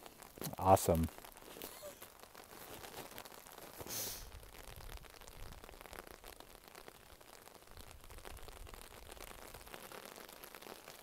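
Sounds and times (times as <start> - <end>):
light rain pattering on a tarp: 0.0 - 11.0
brief hiss: 3.8 - 4.3.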